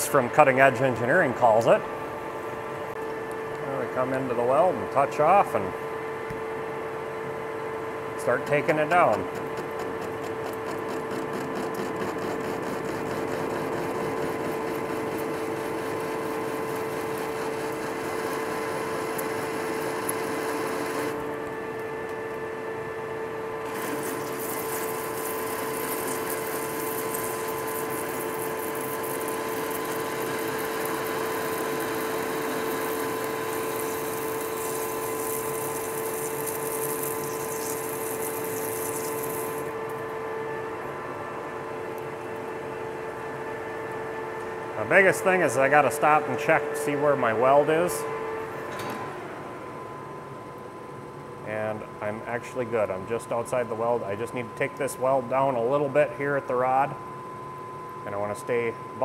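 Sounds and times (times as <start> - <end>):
lathe running tone: 8.4 - 21.4, 23.6 - 39.8.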